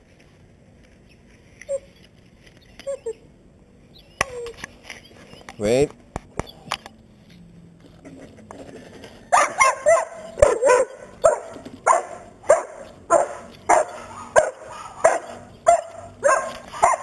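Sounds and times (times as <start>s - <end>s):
dog barking: 9.3s - 17.0s.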